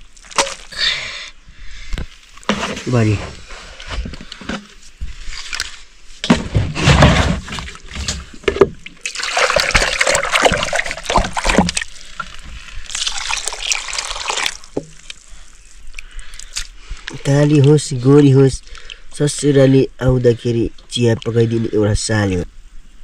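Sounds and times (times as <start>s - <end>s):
water pouring and sloshing: 0.0s - 0.8s, 2.2s - 17.9s.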